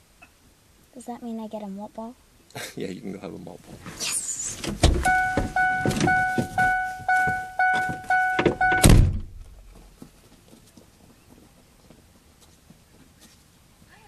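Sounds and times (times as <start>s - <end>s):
faint outdoor background: 0.0s - 14.0s
car door slamming: 4.6s - 9.4s
door-open warning chime: 5.0s - 9.1s.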